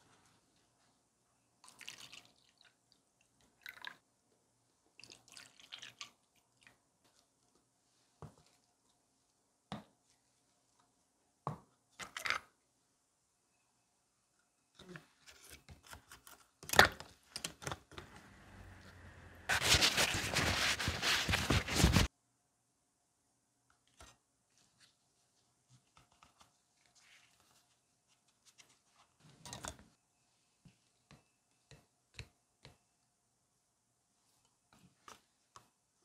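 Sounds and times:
liquid pouring into plastic cups: 0:01.6 - 0:04.1, 0:04.9 - 0:06.8.

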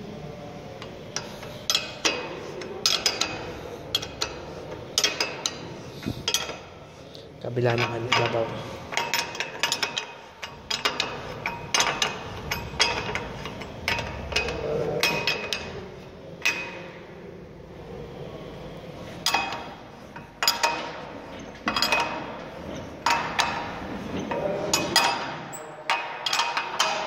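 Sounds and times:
spanner clinking on bolts: 0:01.2 - 0:06.6, 0:07.7 - 0:15.8, 0:19.2 - 0:27.0.

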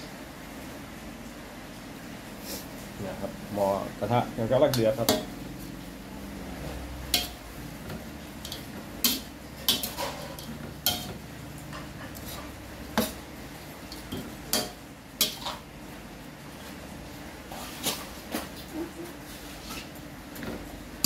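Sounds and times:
steady low sizzle: 0:00.0 - 0:21.0
metal ladle scraping a wok: 0:06.4 - 0:13.2, 0:13.9 - 0:15.7.

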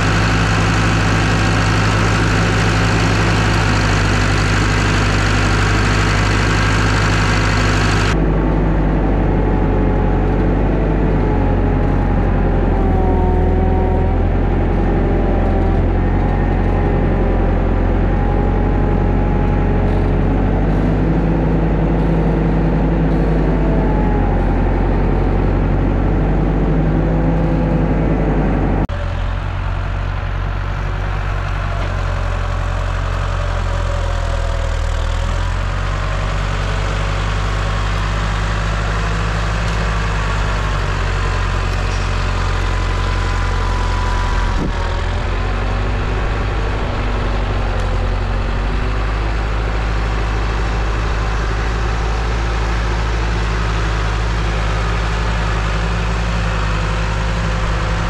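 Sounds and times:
front loader pushing brush: 0:00.0 - 0:58.0
tractor diesel engine running: 0:00.0 - 0:58.0
wavering whine: 0:36.0 - 0:58.0.

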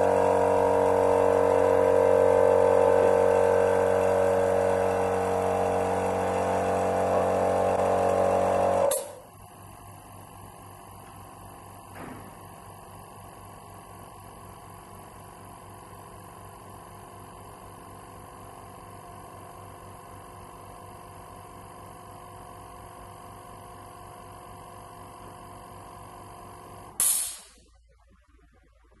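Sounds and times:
air compressor motor hum: 0:00.0 - 0:27.6
hiss of released air: 0:27.0 - 0:27.6.

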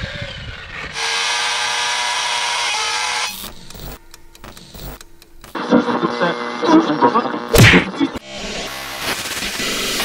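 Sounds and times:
electric motor whining: 0:00.0 - 0:09.9
static crackles and clicks: 0:03.4 - 0:08.2.

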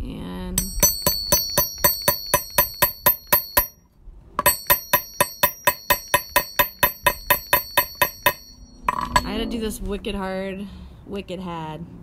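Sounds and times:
hammer striking metal hole punch: 0:00.6 - 0:03.8, 0:04.4 - 0:09.4.

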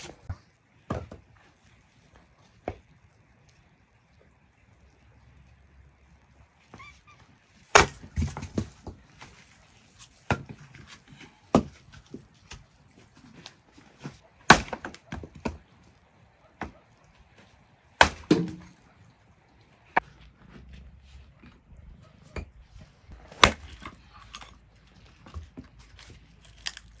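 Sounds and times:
axe splitting firewood: 0:07.6 - 0:15.8, 0:17.4 - 0:18.8, 0:23.1 - 0:27.0.

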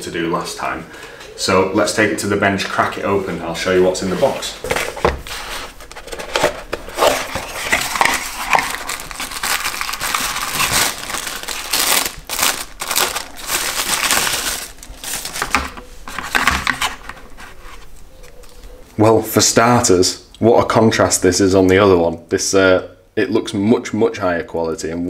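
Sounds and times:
wrapping crinkling: 0:05.3 - 0:18.8.

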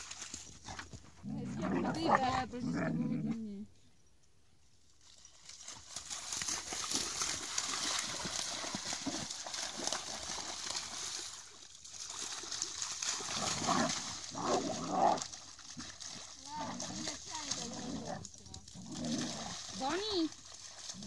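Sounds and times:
dogs splashing in water: 0:05.0 - 0:21.0.

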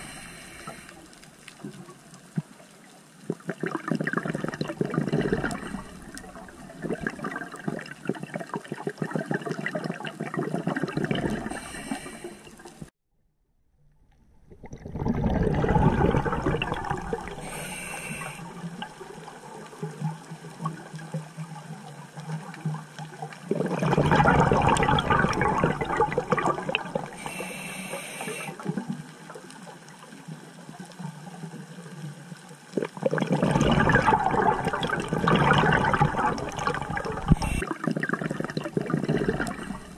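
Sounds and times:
regulator inhalation hiss: 0:00.0 - 0:01.1, 0:11.5 - 0:12.6, 0:17.4 - 0:18.5, 0:27.1 - 0:28.6, 0:37.3 - 0:37.6
exhaled bubbles gurgling: 0:03.2 - 0:12.9, 0:14.4 - 0:30.2, 0:32.7 - 0:39.9.

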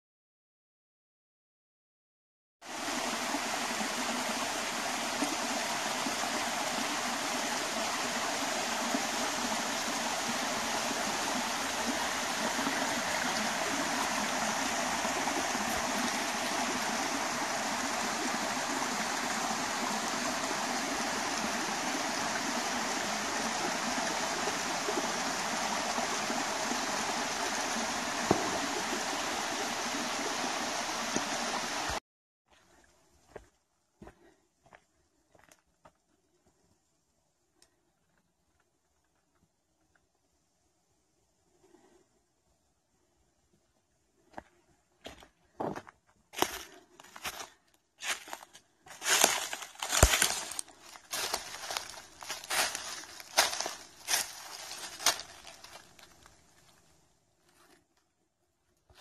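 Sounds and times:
water rushing over rock: 0:02.7 - 0:32.0.

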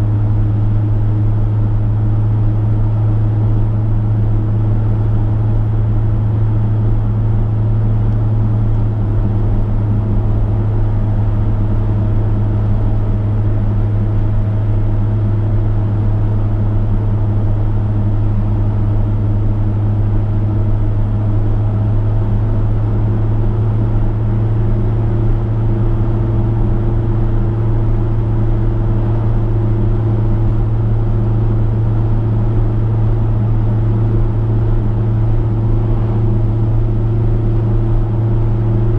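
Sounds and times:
car engine droning: 0:00.0 - 0:38.9.

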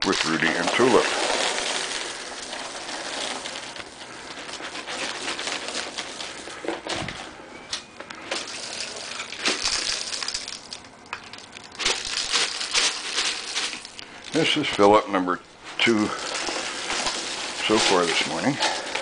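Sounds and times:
footsteps on dry leaves: 0:15.6 - 0:19.0.

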